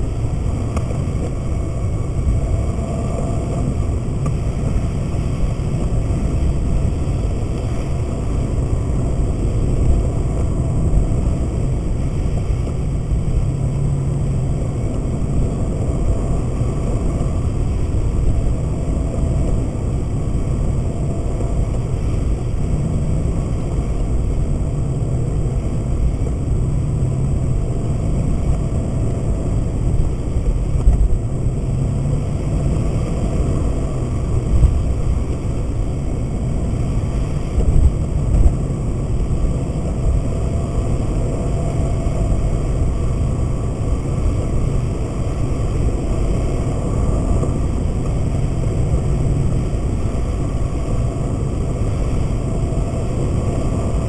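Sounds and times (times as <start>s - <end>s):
car cabin road rumble: 0.0s - 54.0s.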